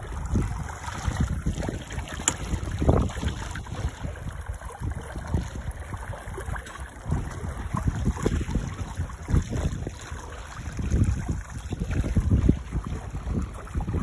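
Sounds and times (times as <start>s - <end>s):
water rushing and splashing: 0.0s - 14.0s
wind buffeting microphone: 0.0s - 14.0s.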